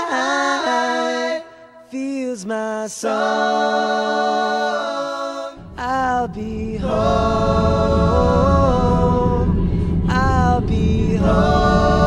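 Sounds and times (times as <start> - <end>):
voices singing in harmony: 0.0 - 12.0
low rumble: 5.6 - 12.0.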